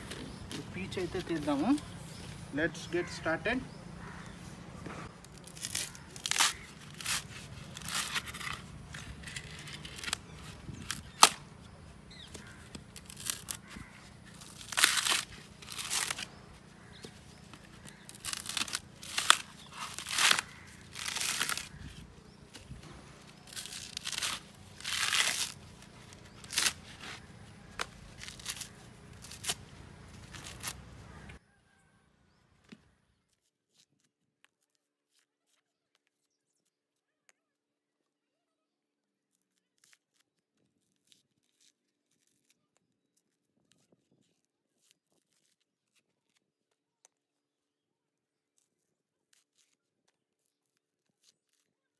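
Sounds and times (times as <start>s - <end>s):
coconut husk being ripped: 5.1s - 31.4s, 48.6s - 51.9s.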